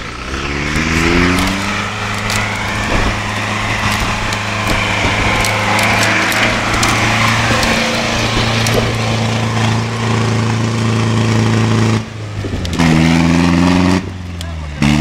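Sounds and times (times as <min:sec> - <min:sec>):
engine revving high: 0:00.0 - 0:15.0
tyres churning through mud: 0:00.0 - 0:15.0
twigs cracking: 0:00.3 - 0:09.9.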